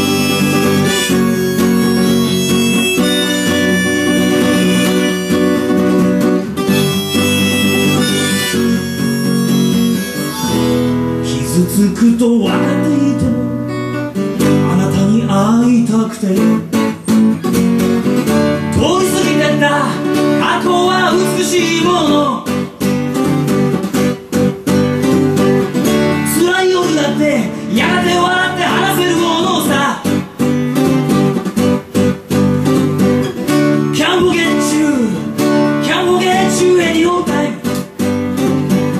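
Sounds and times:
harmonica: 0.0 - 11.4
strummed acoustic guitar: 0.0 - 38.9
man singing: 11.2 - 13.8, 14.4 - 16.9, 18.6 - 22.8, 26.1 - 30.4, 33.8 - 38.0.

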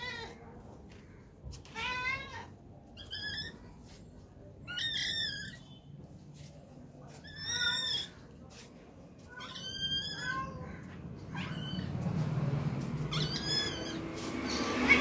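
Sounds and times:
cat meowing: 0.0 - 0.4, 9.2 - 12.0, 12.8 - 14.3.

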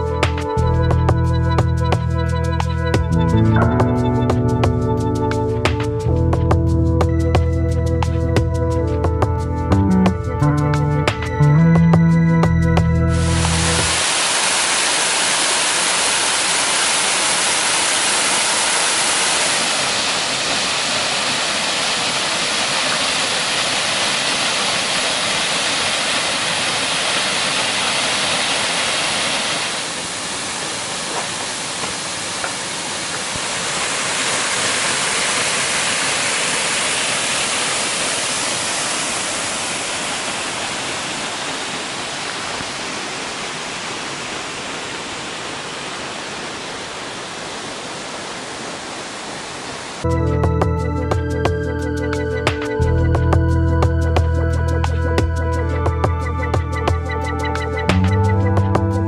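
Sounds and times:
waterfall rushing: 13.1 - 50.1.

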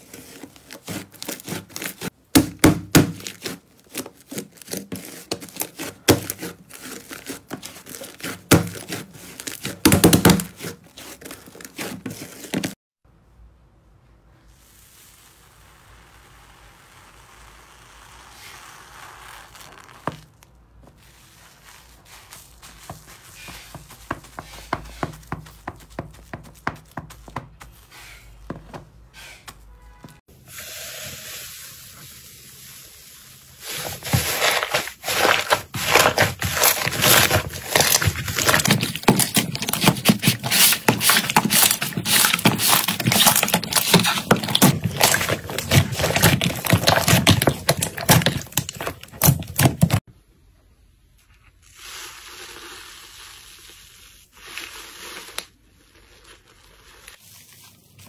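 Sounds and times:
potato masher pressing slime: 0.1 - 12.7, 33.8 - 50.0
soft crackle of foamy slime: 14.4 - 24.1, 51.4 - 58.0
hands squishing slime: 33.7 - 50.0.

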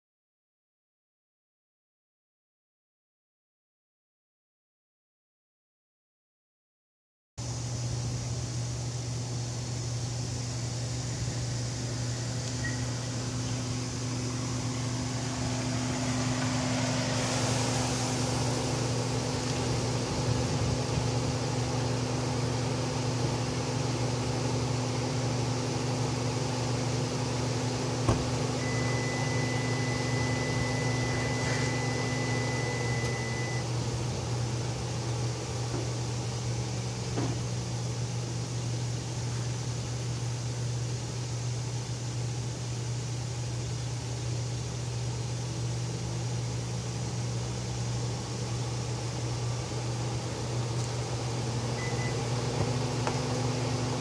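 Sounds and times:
climate-control fan running: 7.4 - 54.0
car engine idling: 9.2 - 37.6
thin high steady tone: 10.2 - 19.1.

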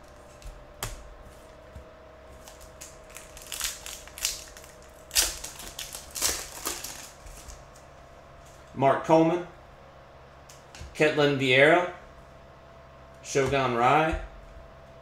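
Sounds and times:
foil wrapper crinkling and tearing: 2.4 - 7.8.

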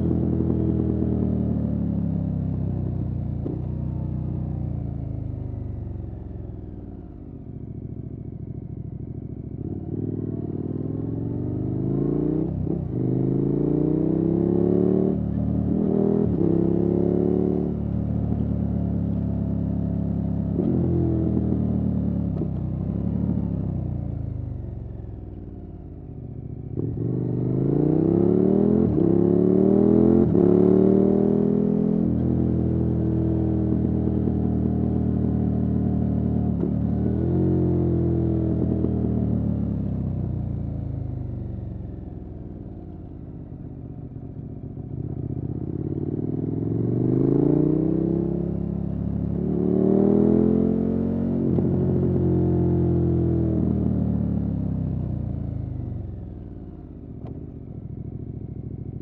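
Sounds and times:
motorcycle engine revving and upshifting: 9.6 - 23.7, 26.8 - 40.0, 45.0 - 56.2.

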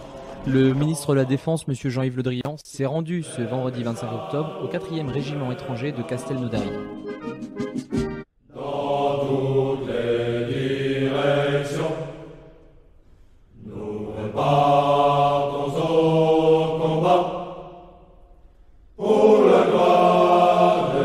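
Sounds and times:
male choir singing a chant: 0.0 - 1.9, 3.1 - 6.8, 8.5 - 12.4, 13.6 - 17.8, 19.0 - 21.0.

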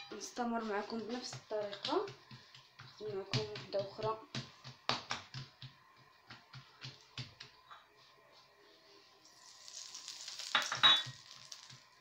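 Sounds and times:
oil sizzling in frying pan: 9.2 - 12.0.

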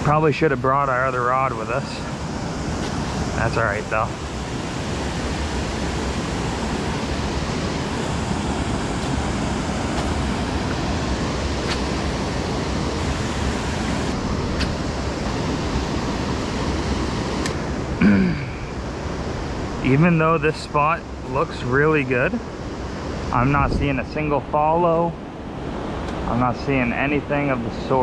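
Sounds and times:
river water rushing over weir: 0.0 - 20.3.

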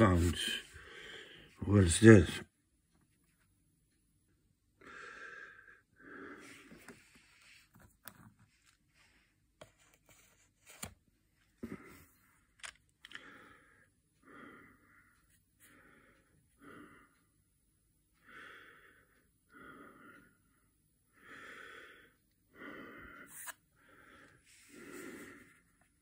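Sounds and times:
soft breathing: 0.3 - 1.6, 4.8 - 7.8, 13.1 - 17.4, 18.2 - 26.0.

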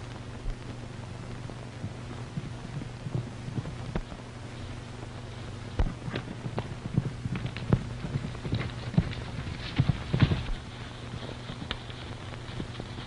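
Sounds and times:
horse hooves thudding on ground: 0.0 - 13.0
steady low hum: 0.0 - 13.0.

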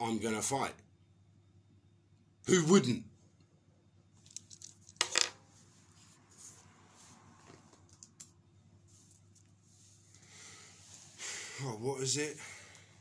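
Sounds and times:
low room hum: 0.0 - 13.0
small objects clicking and clinking: 4.2 - 5.3.

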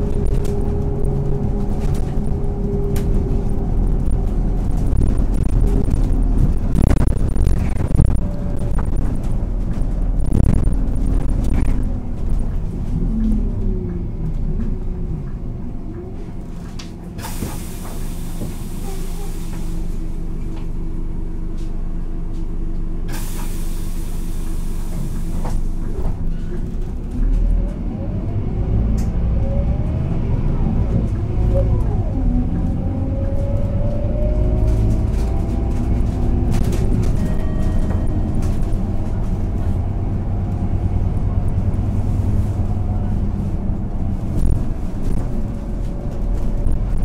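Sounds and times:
gearbox whine: 0.0 - 12.4
bus diesel engine running: 0.0 - 47.0.

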